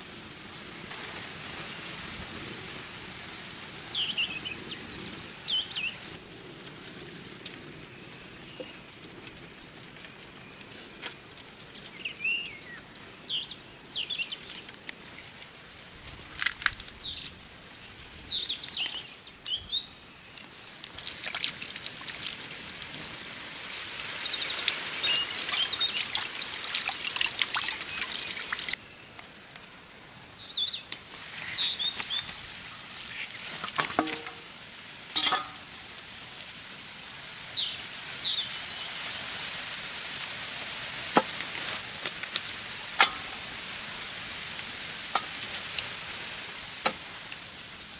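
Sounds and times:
rustling and splashing water: 0.0 - 47.9
small birds chirping: 3.4 - 6.2, 11.6 - 15.4, 16.7 - 22.0, 23.7 - 29.4, 30.2 - 34.4, 37.1 - 39.3.

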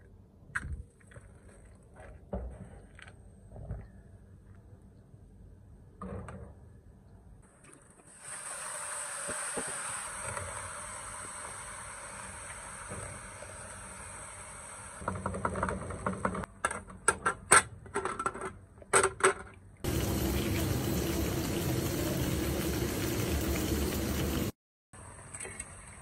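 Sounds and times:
boiling hiss: 8.0 - 15.4, 19.8 - 24.6.

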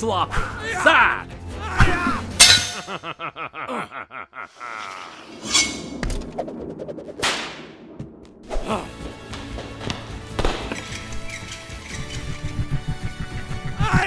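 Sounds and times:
metal blades clanging: 2.3 - 3.1
blade swish: 5.3 - 7.7, 10.6 - 14.0.

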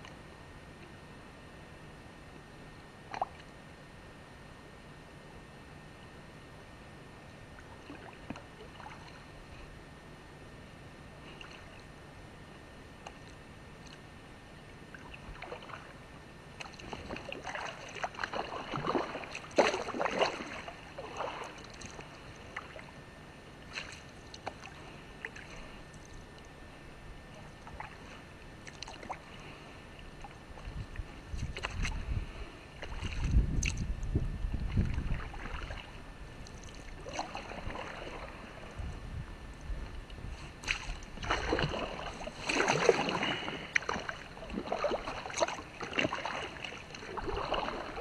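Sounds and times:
paddle strokes splashing water: 7.5 - 9.3, 14.9 - 23.0, 23.6 - 26.4, 27.3 - 32.1, 32.7 - 33.9, 34.6 - 38.9, 40.4 - 48.0
low rumble: 30.2 - 36.5.

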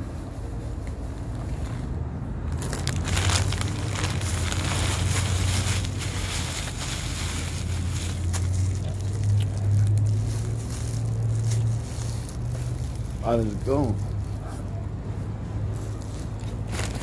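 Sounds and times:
chip bag crinkling: 2.5 - 14.4, 16.0 - 17.0
paper wrapper crumpling: 2.5 - 14.4, 16.0 - 17.0.

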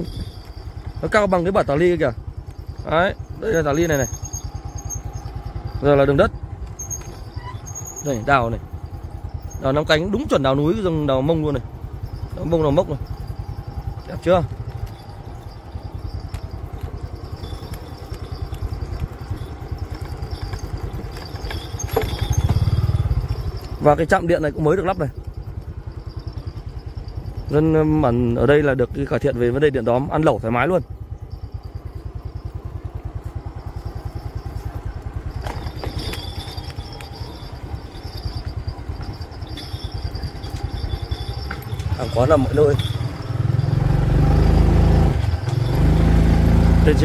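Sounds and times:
light rattles: 0.0 - 47.0
motorbike engine low putter: 0.0 - 47.0
thin high steady tone: 0.0 - 47.0.

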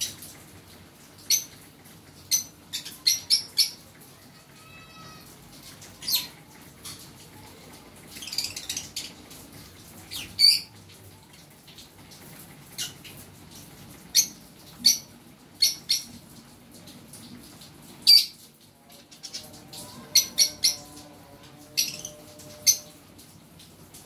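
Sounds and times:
birds chattering: 2.2 - 4.0, 19.0 - 21.0.

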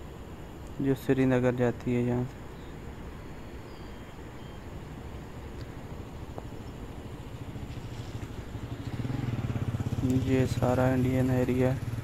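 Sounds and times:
vehicle engine rumbling: 4.9 - 12.0.

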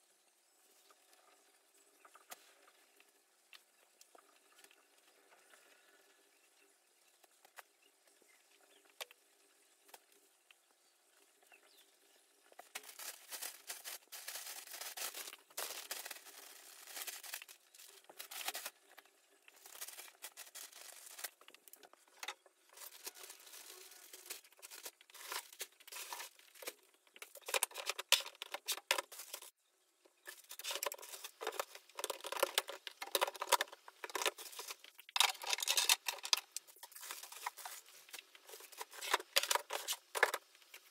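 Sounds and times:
rustling and crinkling: 12.4 - 40.9.

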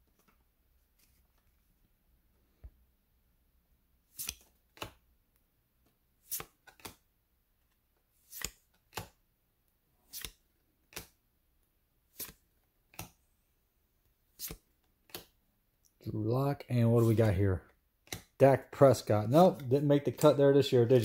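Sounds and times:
cards swiping against cards: 4.1 - 5.0, 6.2 - 7.0, 8.2 - 9.2, 10.0 - 11.2, 12.1 - 13.2, 14.3 - 15.4, 18.0 - 18.4, 19.4 - 20.4.

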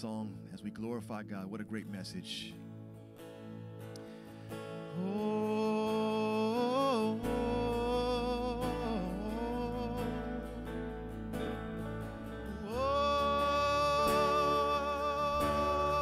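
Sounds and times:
low bass note: 7.2 - 16.0.

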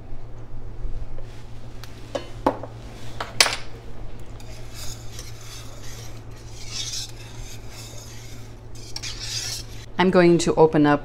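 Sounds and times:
whisk stirring in metal pan: 4.4 - 9.9.

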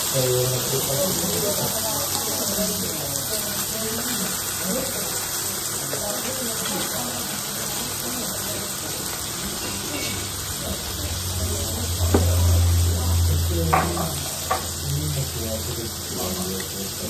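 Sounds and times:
meat sizzling on a griddle: 0.0 - 17.0
low hum: 11.0 - 15.2.

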